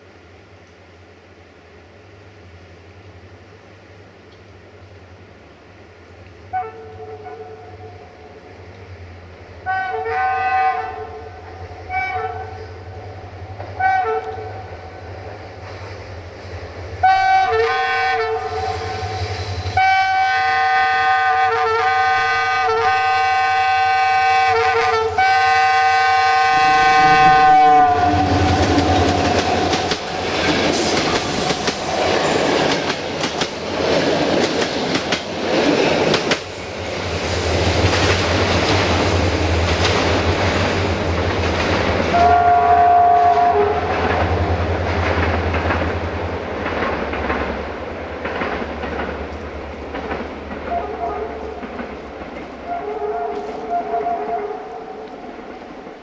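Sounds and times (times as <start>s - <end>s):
two-tone locomotive horn: 6.5s - 8.0s, 9.6s - 12.9s, 13.7s - 14.8s, 17.0s - 19.2s, 19.8s - 30.9s, 42.1s - 44.1s, 50.6s - 51.6s, 52.6s - 55.1s
locomotive engine rumble: 24.7s - 33.8s.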